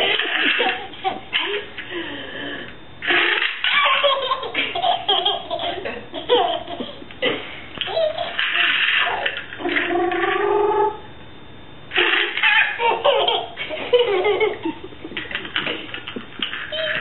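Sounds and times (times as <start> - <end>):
baby laughing: 3.1 - 7.0, 7.8 - 9.4, 12.0 - 17.0.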